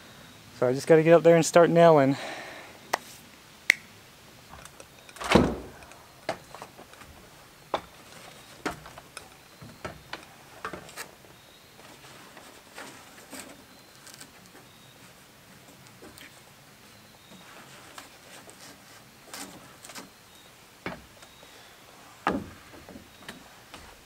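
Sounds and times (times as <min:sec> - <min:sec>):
loud thump: 0:05.2 - 0:05.8.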